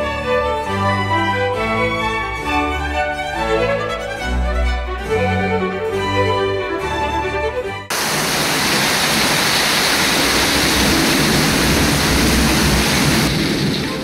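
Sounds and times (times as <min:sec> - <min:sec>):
heavy rain downpour: 0:07.9 - 0:14.0.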